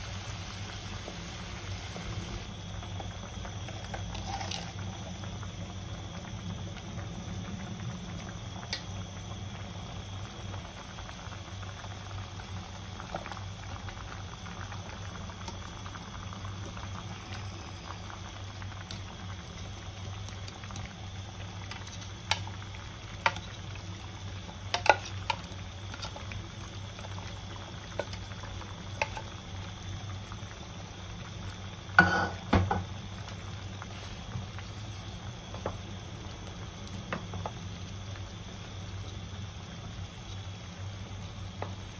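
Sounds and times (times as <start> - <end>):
broth bubbling in a pan: 0.0 - 41.9.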